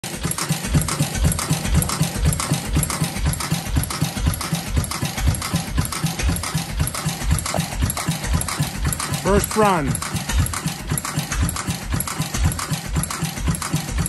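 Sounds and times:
stationary engine chuffing: 0.0s - 14.0s.

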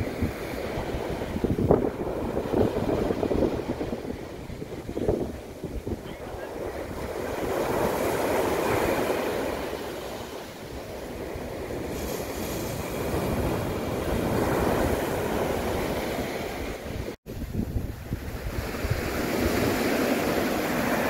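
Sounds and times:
sea waves breaking on sand beach: 0.0s - 21.0s.

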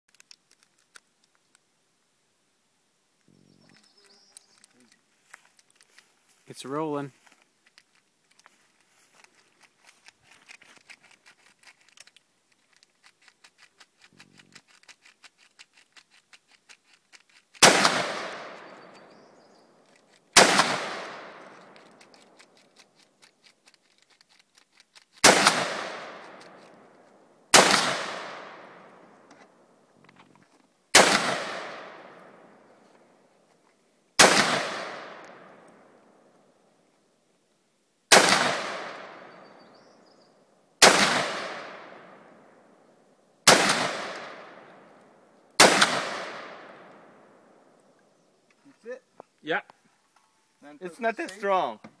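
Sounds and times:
rifle shots with echo: 17.6s - 19.2s, 20.3s - 22.0s, 25.2s - 26.9s, 27.5s - 29.3s, 30.9s - 32.7s, 34.2s - 36.3s, 38.1s - 39.6s, 40.8s - 42.5s, 43.5s - 45.0s, 45.6s - 47.6s.

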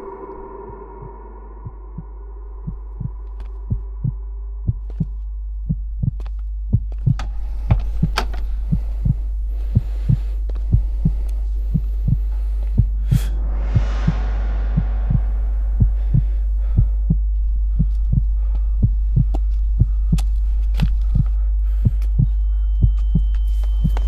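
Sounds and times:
steady low drone: 0.0s - 24.0s
heartbeat thumps: 0.1s - 24.0s.

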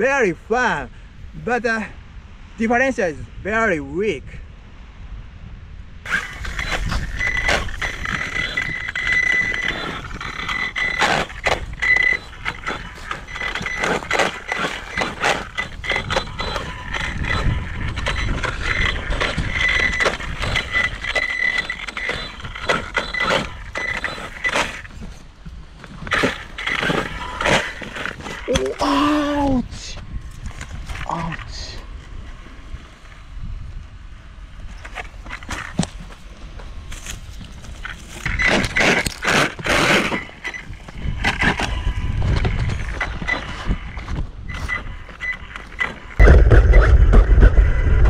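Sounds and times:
tires knocking over rock: 6.1s - 28.6s, 34.7s - 48.0s
electric motor high whine: 6.1s - 29.1s.

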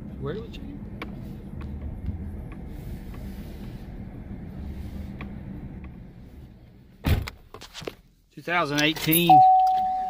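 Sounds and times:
low engine and road drone: 0.0s - 10.0s.

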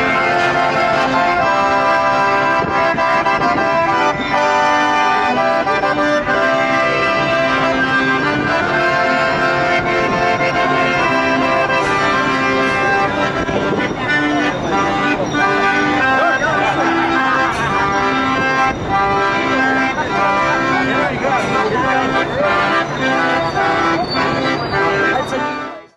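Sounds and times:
accordion playing a tune: 0.0s - 25.9s.

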